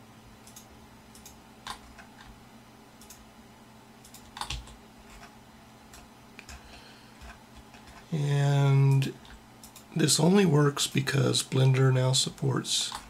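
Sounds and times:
keyboard and mouse clicks: 0.4 - 2.3, 3.0 - 3.2, 4.0 - 5.3, 5.9 - 8.0, 8.9 - 9.9.

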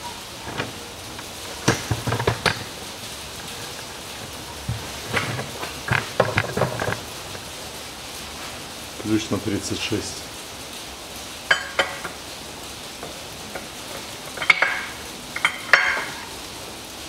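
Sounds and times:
background hiss: 0.0 - 17.0
metal tools clicking and knocking: 0.4 - 7.1, 13.5 - 16.3.

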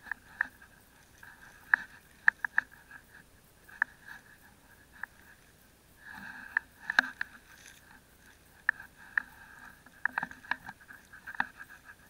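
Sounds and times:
fishing net clicks and crackles: 6.1 - 12.0.

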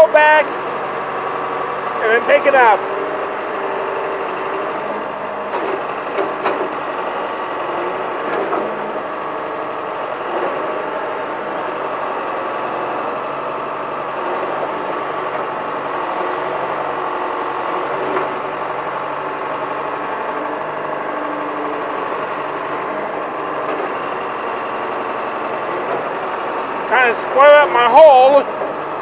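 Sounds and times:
backhoe diesel engine running: 0.0 - 29.0.

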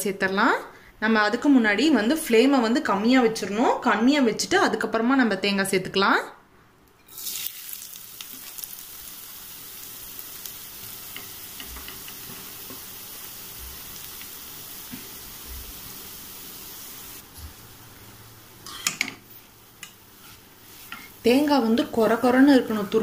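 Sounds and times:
coconut sizzling in hot fat: 7.1 - 17.3, 18.7 - 23.0.

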